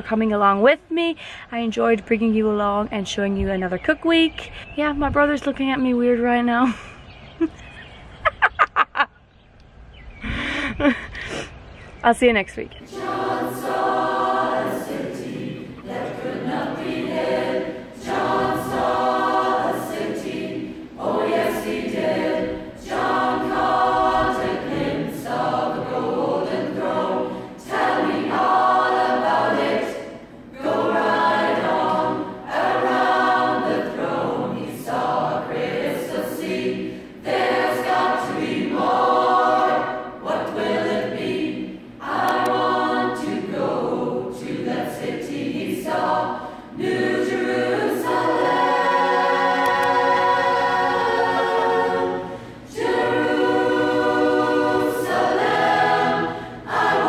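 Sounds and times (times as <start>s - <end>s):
a cappella choir singing: 12.8s - 57.0s.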